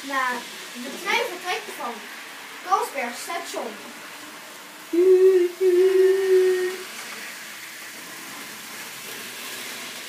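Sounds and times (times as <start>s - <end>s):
person humming a held note: 4.9s - 6.8s.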